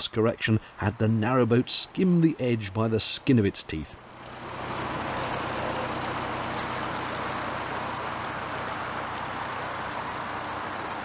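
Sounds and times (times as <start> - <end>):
diesel engine humming: 0.0 - 11.0
propeller churning water: 4.0 - 11.0.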